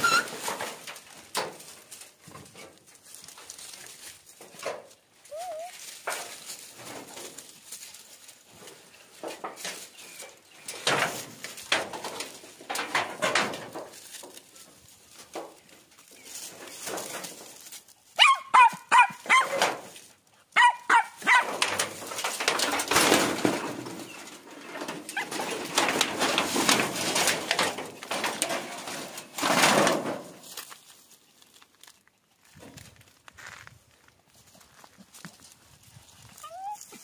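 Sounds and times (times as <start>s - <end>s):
rustling and scraping: 0.0s - 37.0s
animal yelping: 5.3s - 5.7s.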